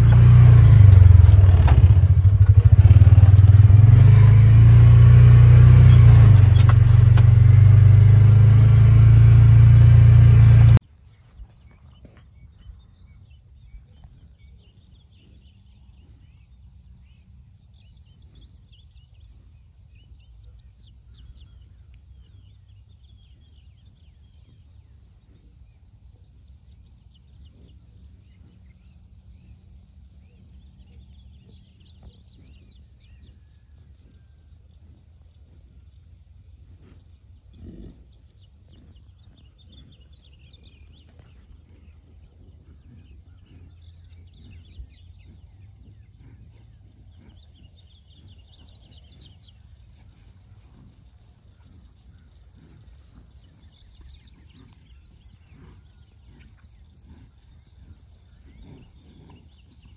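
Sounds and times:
rattle and wind: 0.0s - 8.0s
utility vehicle engine droning: 0.0s - 10.8s, 27.7s - 59.9s
soft chirps and ticks: 21.0s - 22.6s, 36.8s - 59.9s
insects buzzing: 34.4s - 59.9s.

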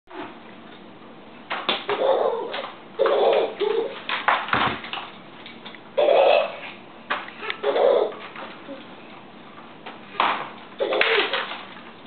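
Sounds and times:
babies babbling and cooing: 6.0s - 6.8s.

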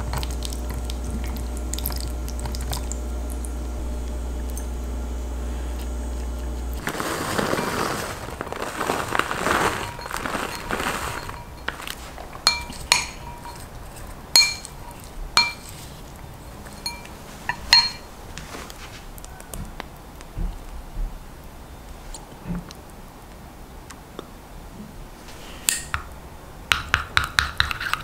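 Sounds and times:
food rustling in glass bowl: 5.8s - 19.1s
spoon clinking glass bowl: 9.4s - 15.8s, 16.7s - 18.1s.

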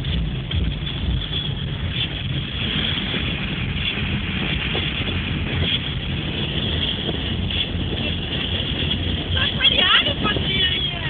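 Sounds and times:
road rumble inside car: 0.0s - 11.0s
wind buffeting microphone: 0.0s - 11.0s.

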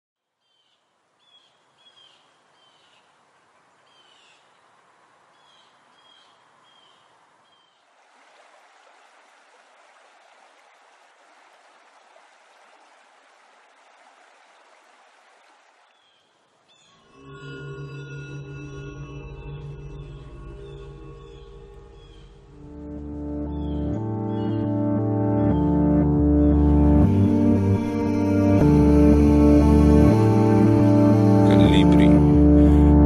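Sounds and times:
bird chirping: 0.4s - 7.9s, 15.8s - 17.5s, 19.4s - 22.7s, 23.5s - 24.8s
running water: 0.9s - 16.7s.

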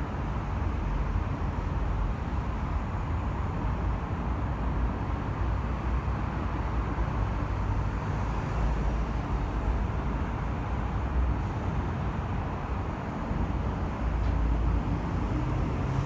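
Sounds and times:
traffic rumble: 0.0s - 16.0s.

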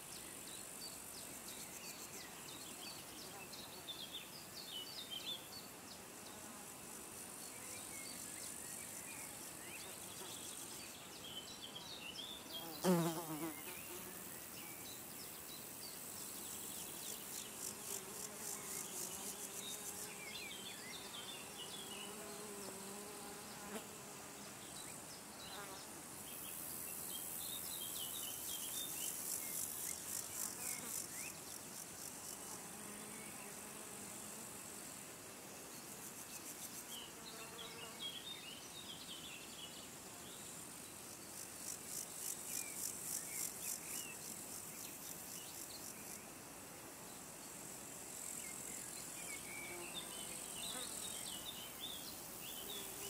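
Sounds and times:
low steady insect buzz: 0.0s - 53.0s
meadow insects trilling: 0.0s - 53.0s
flying insect buzzing past: 0.2s - 11.9s, 12.5s - 14.9s, 15.8s - 53.0s.

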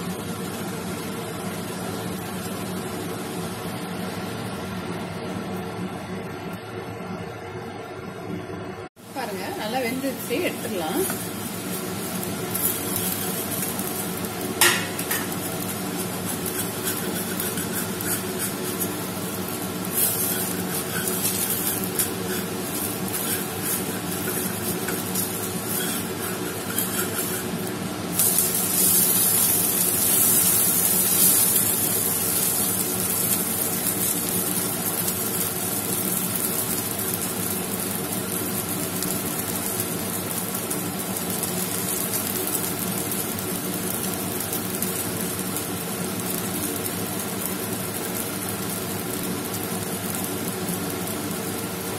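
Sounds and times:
dosa sizzling on a pan: 0.0s - 5.6s, 9.0s - 51.9s
steady hum: 0.0s - 36.4s
metal spatula scraping a pan: 14.6s - 31.5s.

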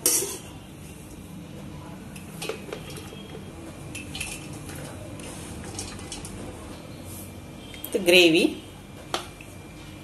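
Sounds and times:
metal spoon clinking against pot: 0.0s - 0.5s.

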